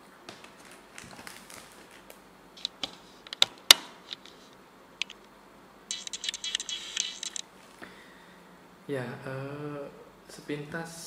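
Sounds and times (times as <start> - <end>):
plastic packaging crackling: 0.4 - 2.2.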